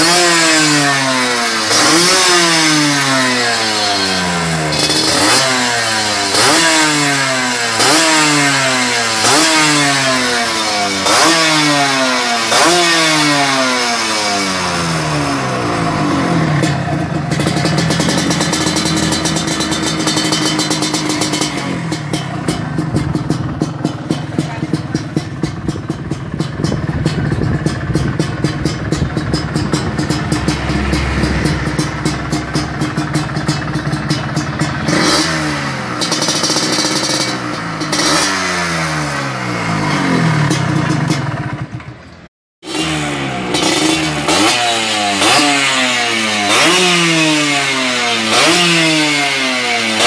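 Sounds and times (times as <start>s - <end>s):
motorcycle engine revving: 0.0s - 50.0s
motorcycle engine idling: 14.4s - 38.1s, 38.7s - 42.3s.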